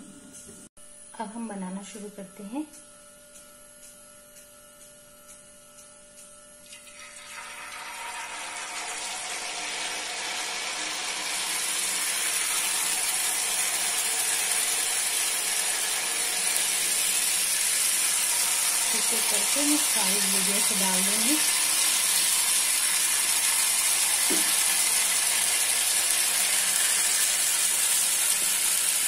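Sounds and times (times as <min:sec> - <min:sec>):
batter sizzling in hot ghee: 0:06.7 - 0:29.0.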